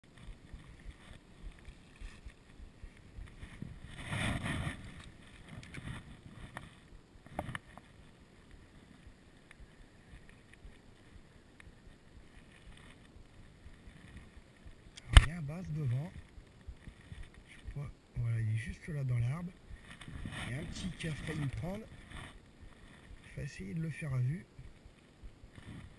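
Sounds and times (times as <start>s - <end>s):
faint wind on microphone: 0.0s - 25.9s
microphone handling rustle: 0.0s - 25.9s
sharp click: 15.0s - 15.3s.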